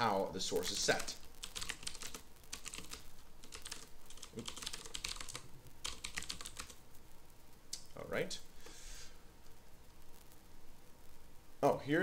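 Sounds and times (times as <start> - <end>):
typing on computer keyboard: 0.6 - 6.8.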